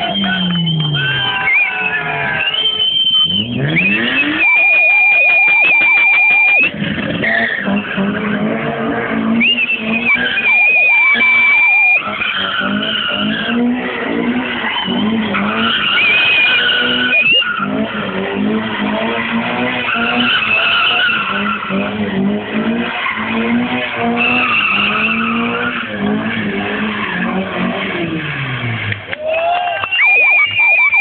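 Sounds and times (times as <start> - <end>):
car engine revving hard: 2.1 - 4.5, 6.4 - 29.0
tyres squealing: 9.3 - 22.0, 22.8 - 27.4.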